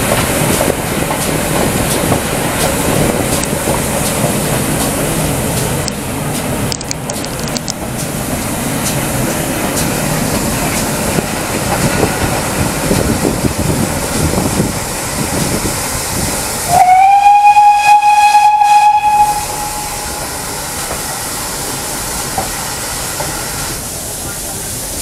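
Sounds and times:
train rumbling on track: 0.0s - 25.0s
train whistle blast: 16.7s - 20.7s.

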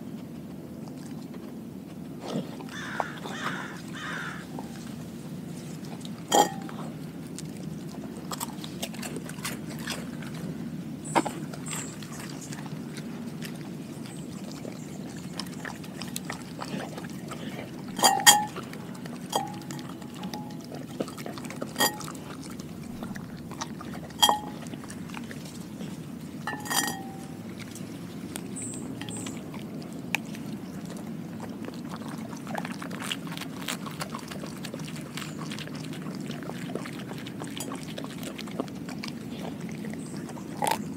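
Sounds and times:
dog licking and chewing: 0.0s - 40.9s
glass bowl clinks: 6.3s - 6.8s, 18.0s - 18.6s, 19.3s - 20.6s, 21.8s - 22.1s, 24.2s - 24.7s, 26.5s - 27.4s.

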